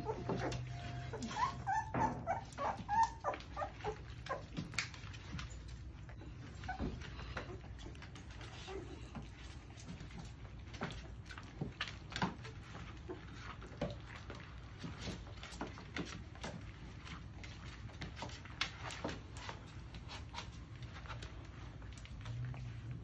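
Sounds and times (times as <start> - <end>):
puppies squeaking and whimpering: 0.0 - 9.3
paws scrabbling on plastic: 0.0 - 23.0.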